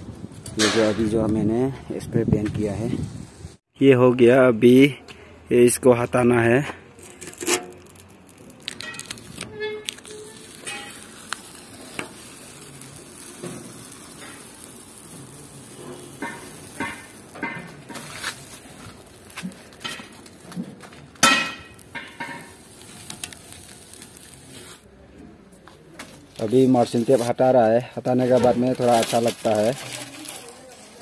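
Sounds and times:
masking tape peeling: 7.0 - 24.9, 26.1 - 31.0.

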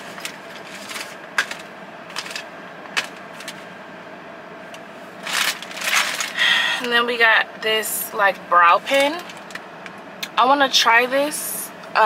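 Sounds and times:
shopping bag rustling: 0.0 - 3.6, 5.2 - 6.5
packaging crinkling and clicking: 0.2 - 3.6, 5.2 - 6.4.

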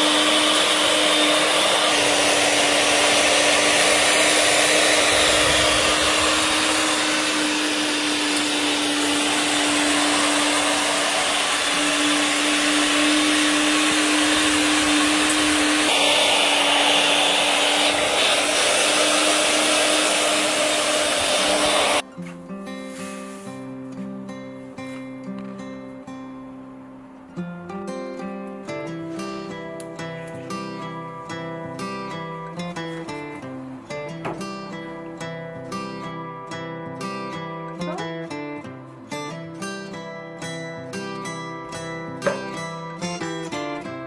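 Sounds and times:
electric herb grinder whirring: 0.0 - 22.0.

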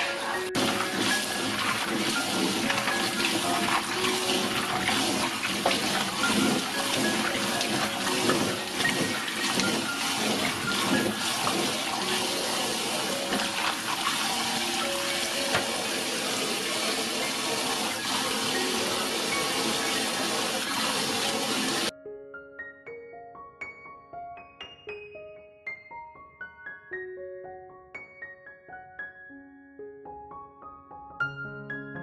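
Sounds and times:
hands swishing in water: 0.0 - 12.3
tap water running into bowl: 0.0 - 21.9.

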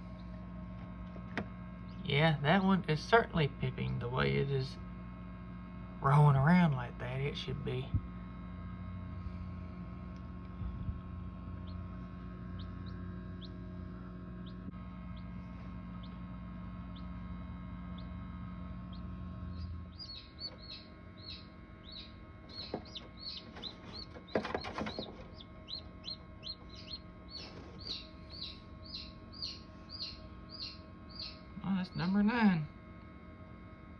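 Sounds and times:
electrical hum: 0.0 - 33.9
chicks peeping: 11.5 - 32.3.

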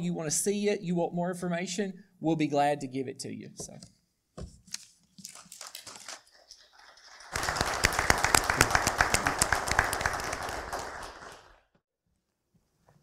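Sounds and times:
congregation applauding: 5.5 - 11.8.

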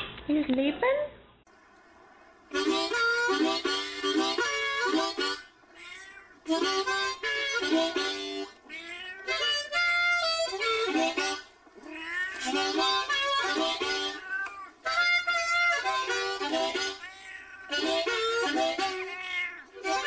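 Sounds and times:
reedy melodic music: 2.5 - 5.5, 6.5 - 8.6, 9.4 - 11.5, 12.5 - 14.2, 14.8 - 17.0, 17.7 - 19.1.

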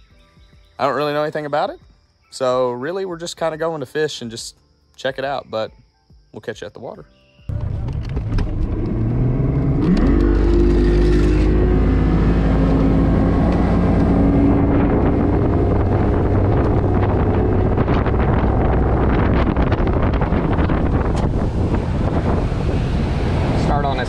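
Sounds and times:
wind: 0.0 - 24.0
outboard motor throttling up: 7.5 - 24.0
water noise: 8.9 - 24.0.

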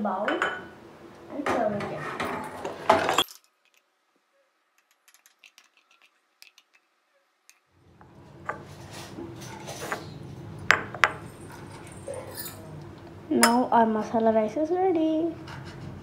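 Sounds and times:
low steady hum: 7.8 - 16.0
wooden spoon scraping a pan: 8.5 - 10.2.

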